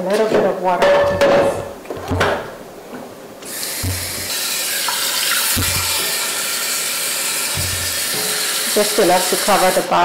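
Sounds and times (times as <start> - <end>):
water running into a pot: 3.4 - 9.9.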